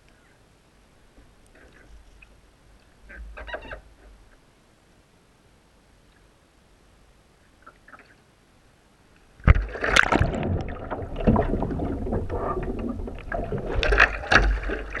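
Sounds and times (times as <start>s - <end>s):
kayak splash: 9.4s - 15.0s
paddle splashes: 9.4s - 15.0s
underwater churning gurgling: 9.4s - 15.0s.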